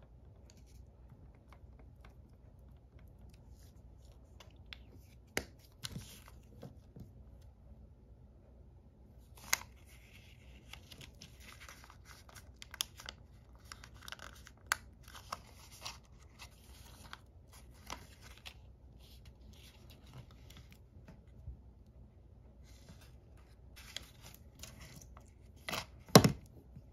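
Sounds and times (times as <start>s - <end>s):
paper rustling and crinkling: 3.4s - 7.0s, 9.3s - 21.2s, 22.6s - 26.9s.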